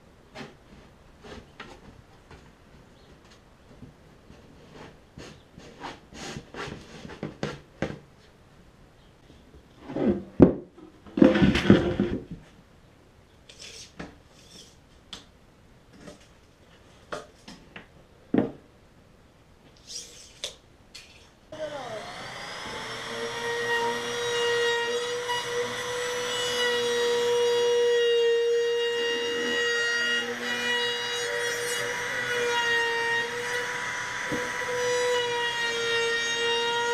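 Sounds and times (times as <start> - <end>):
trim router whining: 21.5 - 36.9.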